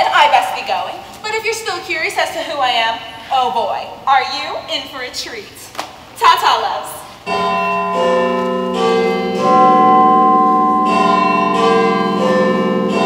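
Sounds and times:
deep tower bell chimes: 7.3 - 13.0.

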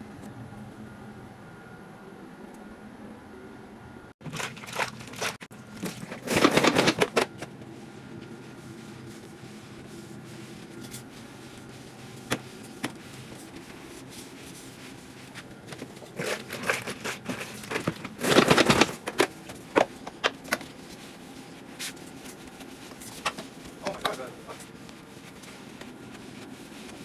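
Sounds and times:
water sloshing in a bucket: 4.2 - 6.6.

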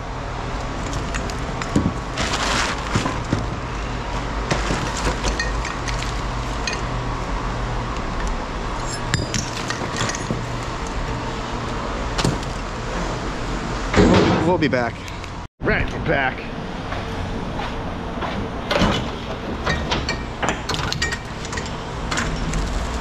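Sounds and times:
scraping rush: 2.0 - 3.3
scrap metal clinking: 4.5 - 7.0, 8.2 - 10.8.

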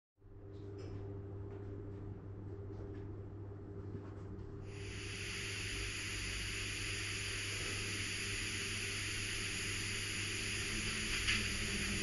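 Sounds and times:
steam hiss from small speaker: 4.7 - 12.0.

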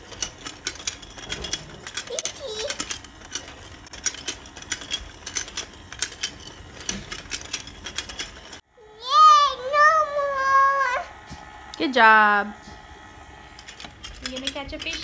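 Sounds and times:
toy motor gears clicking: 0.0 - 8.6, 13.5 - 15.0
child's high voice: 2.1 - 2.8, 8.8 - 11.1.

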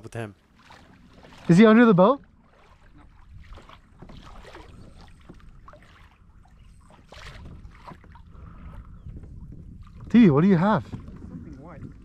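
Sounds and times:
water lapping against kayak hull: 0.0 - 12.0
wind on microphone: 2.9 - 12.0.

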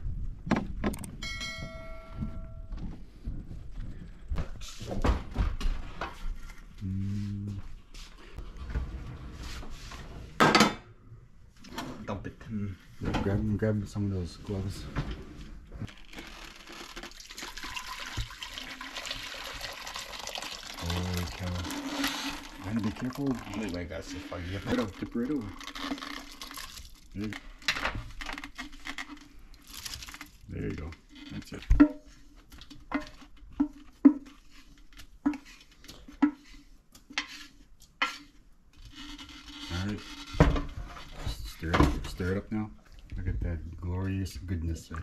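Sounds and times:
liquid pouring into pot: 15.9 - 27.2.

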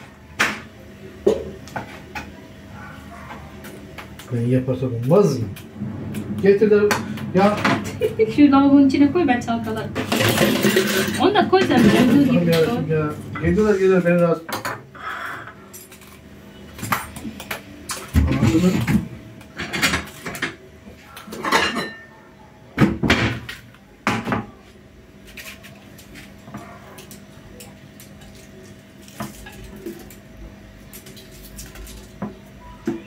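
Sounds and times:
utensils and plate clattering: 9.7 - 20.6, 21.3 - 22.1.

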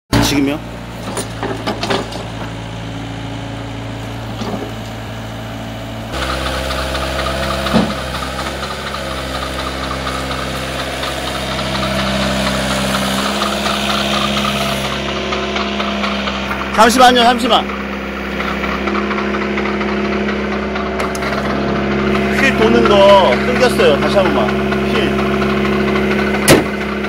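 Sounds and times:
excavator diesel engine: 0.1 - 27.0
metal clank: 1.0 - 2.6.

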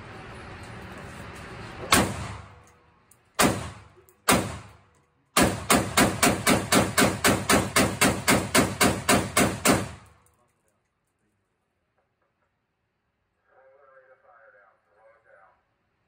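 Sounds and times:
rifle gunshots with reverberation: 1.9 - 2.6, 3.4 - 4.8, 5.4 - 10.1.

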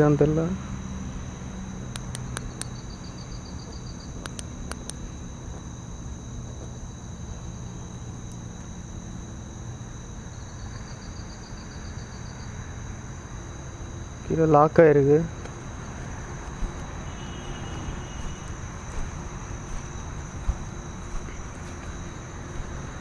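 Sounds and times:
crickets chirring: 0.0 - 23.0
pulsed insect trill: 0.0 - 23.0
light clicks: 1.9 - 2.8, 4.2 - 5.0.

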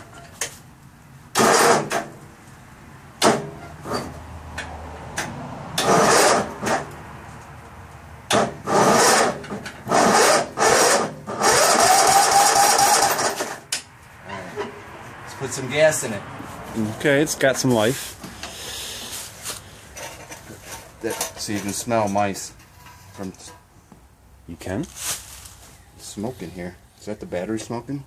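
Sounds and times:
starter motor cranking engine: 1.3 - 2.1, 5.8 - 6.8, 8.3 - 13.6.

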